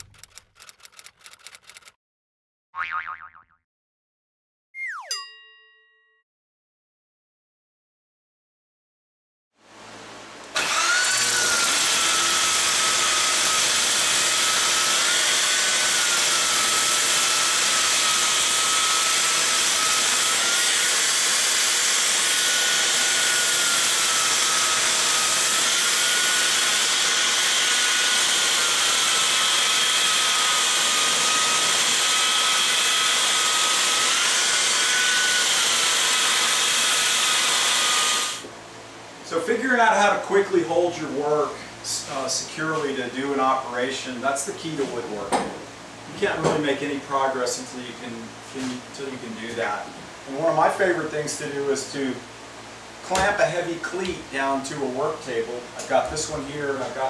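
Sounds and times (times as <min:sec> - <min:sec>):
orbital sander running: 0:10.6 - 0:38.5.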